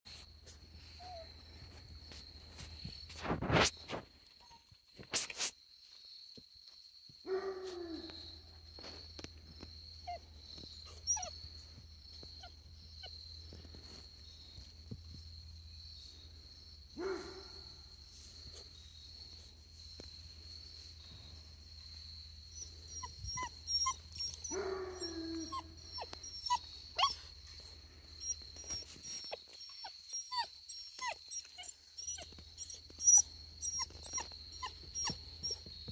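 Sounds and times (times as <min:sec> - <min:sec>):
puppy whimpering: 0:10.9 - 0:11.4, 0:22.9 - 0:27.2, 0:28.2 - 0:35.6.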